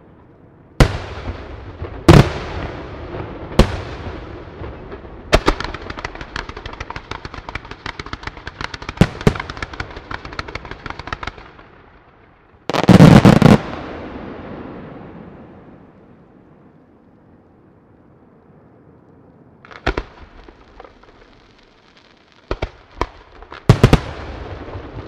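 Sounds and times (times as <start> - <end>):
loud barrage of firework bangs: 0.8 - 11.5, 12.7 - 15.3, 22.5 - 25.0
rapid firework popping: 5.3 - 11.6, 19.7 - 25.0.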